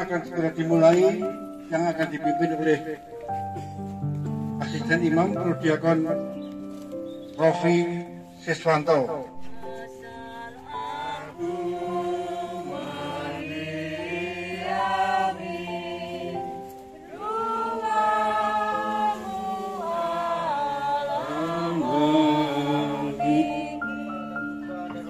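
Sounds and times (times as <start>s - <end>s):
choir singing a hymn: 7.4s - 25.0s.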